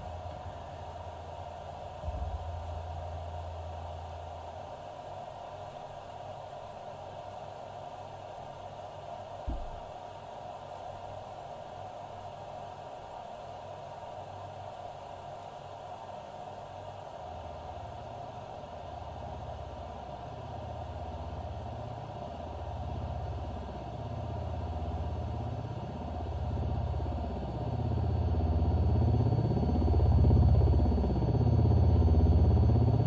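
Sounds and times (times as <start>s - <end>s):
thin high steady whine: 17.0s - 33.0s
low throbbing electronic drone: 17.2s - 33.0s.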